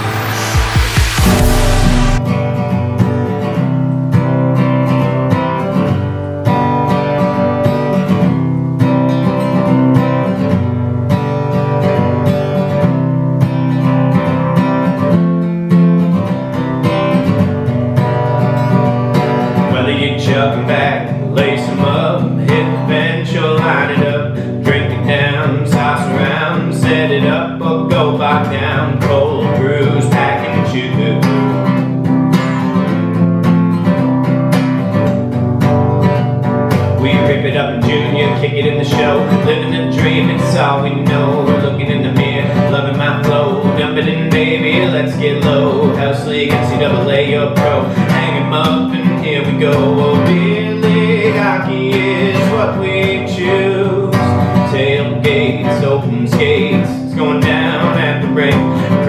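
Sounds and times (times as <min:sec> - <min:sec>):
wavering lead melody: 0:00.0 - 0:02.2
country song with acoustic guitar: 0:01.2 - 0:59.0.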